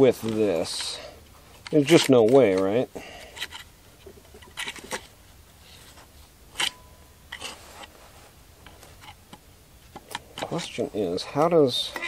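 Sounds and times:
brief metallic ring: 6.6 - 7.1.

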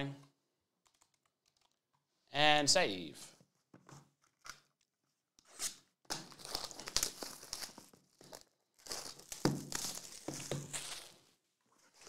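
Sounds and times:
plastic shrink wrap tearing: 5.7 - 12.0.

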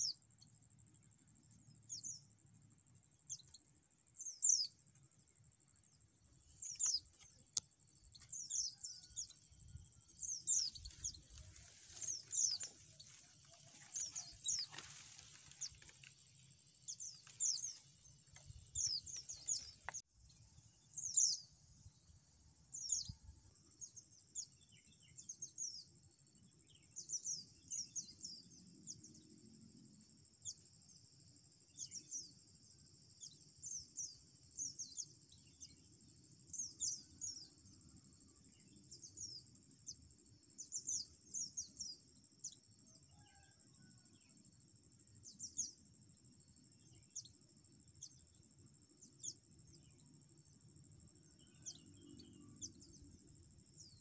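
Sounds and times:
birds chirping high: 10.2 - 16.2.

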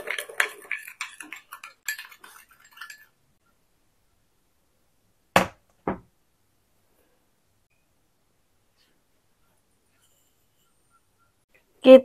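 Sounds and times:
metal spoon scraping ceramic bowl: 0.1 - 3.2.

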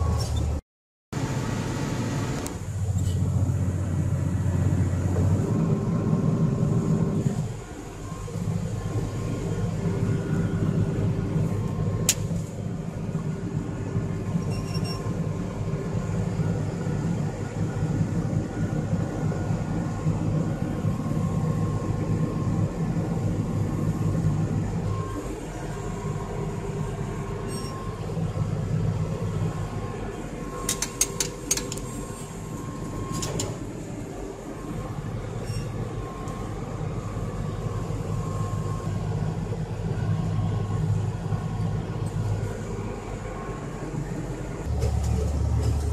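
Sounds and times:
tractor diesel engine running: 1.2 - 45.9
sharp clicks and rattles: 30.7 - 31.9.

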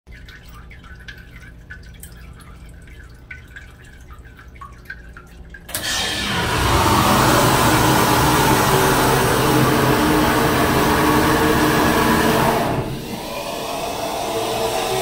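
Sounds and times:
fluid dripping into a puddle: 0.1 - 5.9
loud steady machine noise: 5.7 - 15.0.

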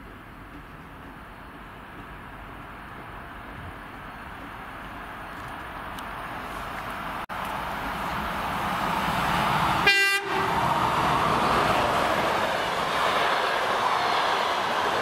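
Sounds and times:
train rolling noise: 0.0 - 15.0
electric locomotive horn blast: 9.8 - 10.6.

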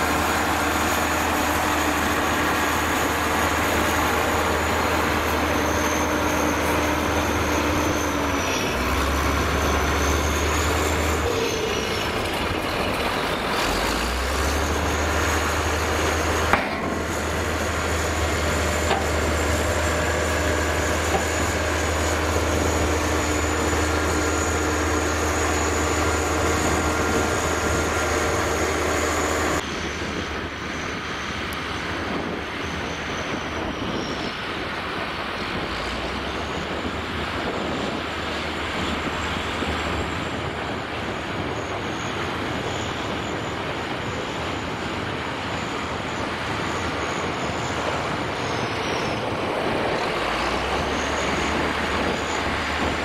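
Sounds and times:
diesel truck engine revving: 0.0 - 29.6, 47.2 - 53.0
truck driving through mud: 0.0 - 30.0, 44.2 - 53.0.

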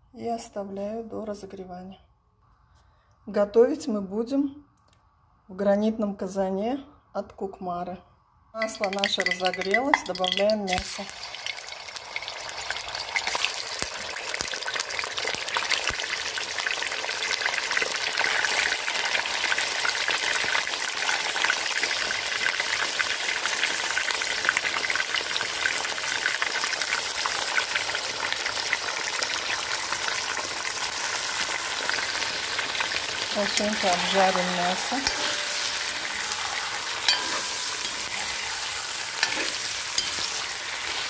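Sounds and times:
chicken sizzling in hot oil: 8.6 - 41.0.

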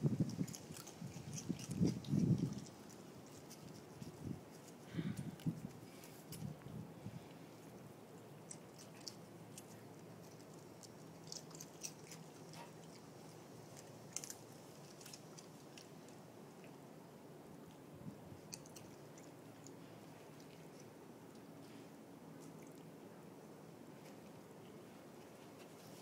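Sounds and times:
raccoon crunching chips: 0.1 - 6.5, 8.2 - 16.7, 18.4 - 21.4.

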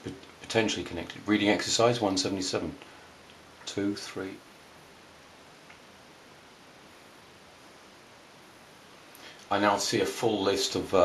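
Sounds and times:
faint hiss: 0.0 - 11.0
faint click: 5.6 - 5.9.

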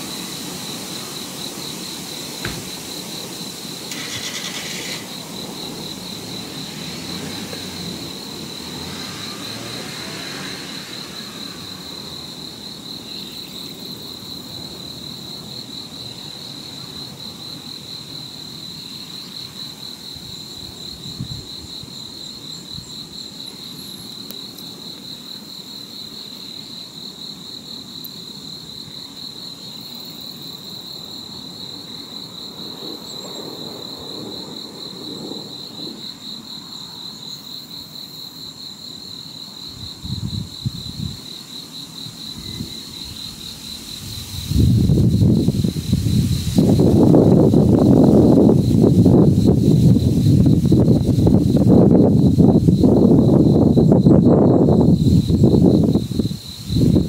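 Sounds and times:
insect trilling: 0.0 - 14.8
low rumble of wind: 0.0 - 23.5, 30.5 - 37.0, 37.6 - 57.0.

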